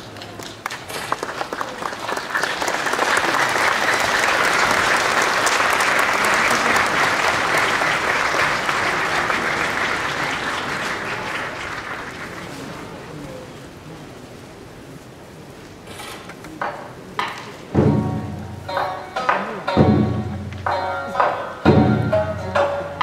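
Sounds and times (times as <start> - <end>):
audience applauding: 0.0 - 13.6.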